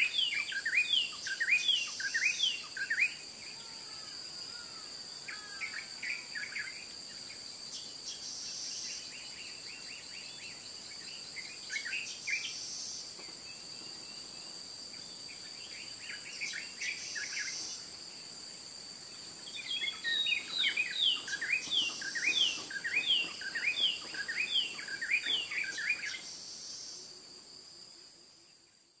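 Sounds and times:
insect drone: 0.0s - 29.0s
birds chirping: 19.4s - 26.3s.

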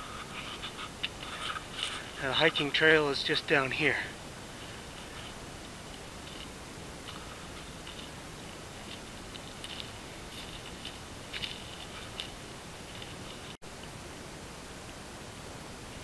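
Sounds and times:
steady hiss: 0.0s - 16.0s
footsteps crunching on pine needles: 4.5s - 13.6s.

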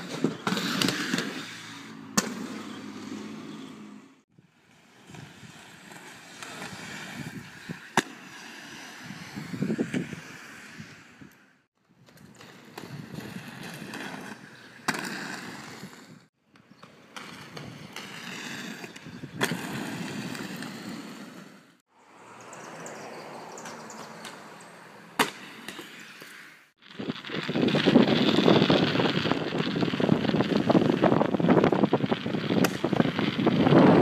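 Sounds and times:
skate wheels rolling: 0.0s - 21.8s, 22.8s - 34.0s.

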